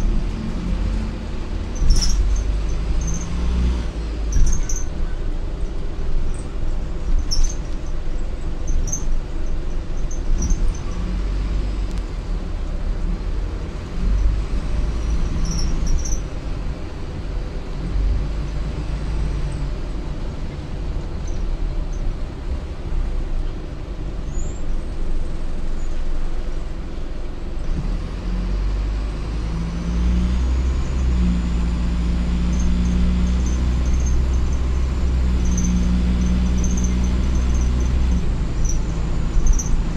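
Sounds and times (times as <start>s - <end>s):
bus diesel engine running: 0.0s - 39.9s
road rumble: 0.0s - 39.9s
short high squeaks: 1.8s - 3.7s, 4.3s - 5.0s, 7.2s - 7.8s, 15.0s - 16.3s, 32.3s - 39.9s.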